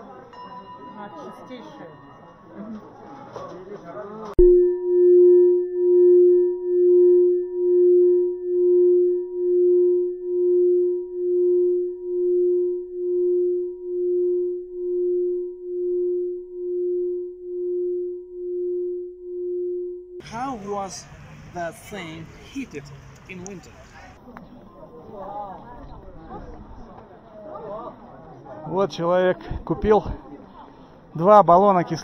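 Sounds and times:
singing bowl ringing: 0:00.3 - 0:02.9, 0:04.4 - 0:20.0.

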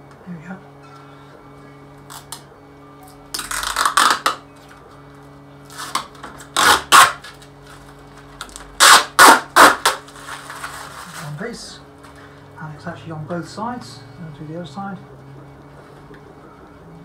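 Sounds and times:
plastic film peeling off glass: 0:03.4 - 0:04.4, 0:05.7 - 0:07.5, 0:08.4 - 0:11.4.

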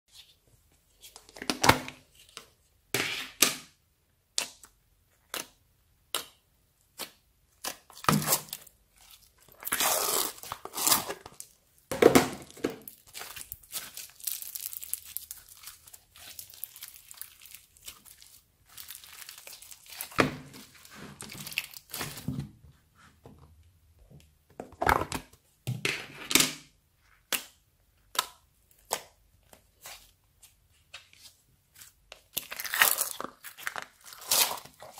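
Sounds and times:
slime crackling and squelching: 0:05.2 - 0:11.6, 0:12.4 - 0:22.2, 0:31.7 - 0:34.9.

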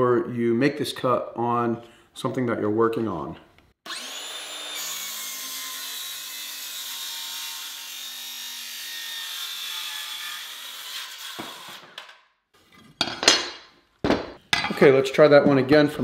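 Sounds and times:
circular saw cutting wood: 0:03.8 - 0:12.1
saw winding down: 0:03.9 - 0:08.6.

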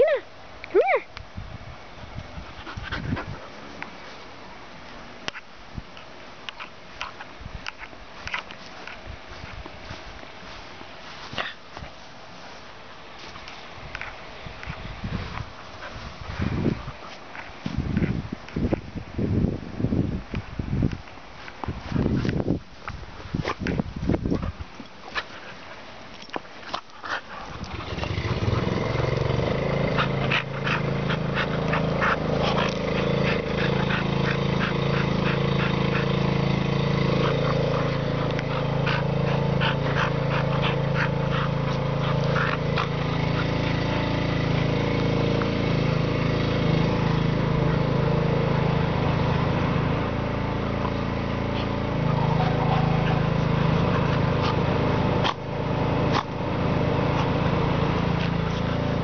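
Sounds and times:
engine running: 0:26.2 - 0:59.0.

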